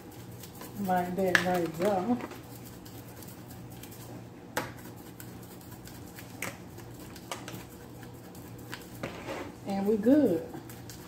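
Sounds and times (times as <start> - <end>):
hands working chicken in plastic tub: 0.0 - 4.2.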